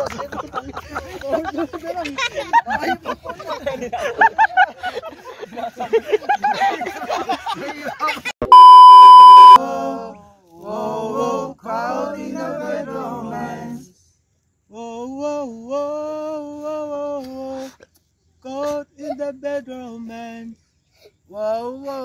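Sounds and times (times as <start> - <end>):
censor bleep: 8.4 - 9.6
men singing unaccompanied: 9.6 - 13.9, 14.7 - 17.8, 18.4 - 20.6, 21.3 - 22.0.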